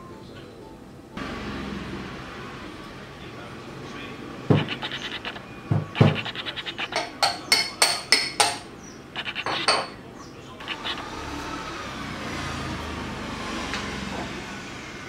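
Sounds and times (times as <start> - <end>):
metal tools knocking: 5.7 - 8.7, 9.4 - 10.0.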